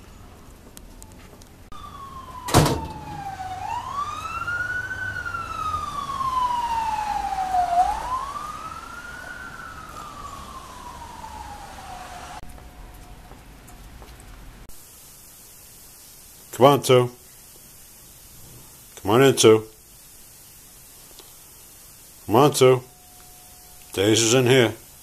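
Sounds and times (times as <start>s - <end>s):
emergency siren wailing: 0.0s - 14.0s.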